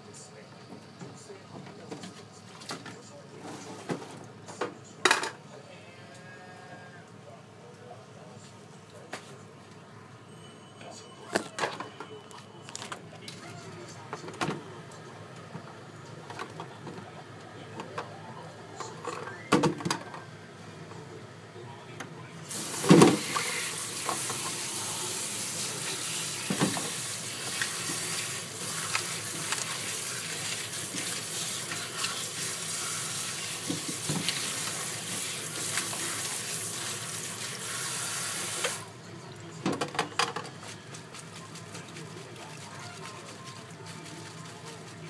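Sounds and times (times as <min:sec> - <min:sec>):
hand stirring leaves: 0:22.5 - 0:38.8, 0:40.5 - 0:45.0
tap water running into colander: 0:22.5 - 0:38.9.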